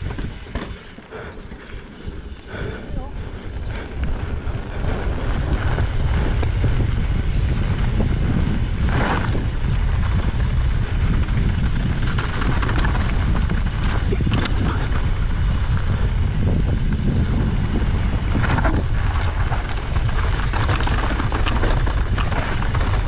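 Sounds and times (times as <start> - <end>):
wind buffeting microphone: 0.0 - 23.0
tyres crunching on gravel: 18.3 - 23.0.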